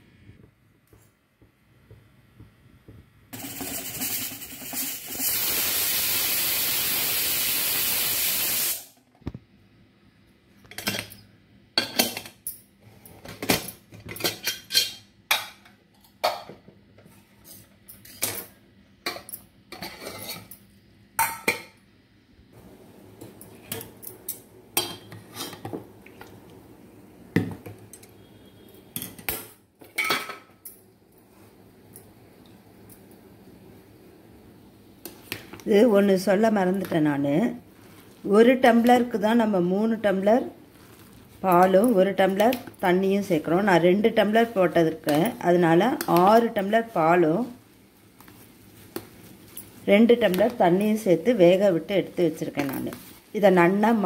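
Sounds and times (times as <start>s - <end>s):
pressure cooker steam hiss: 3.3s - 9.0s.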